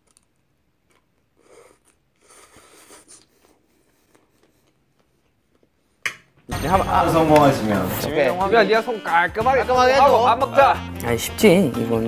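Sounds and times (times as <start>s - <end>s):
faint chewing: 0.0s - 6.0s.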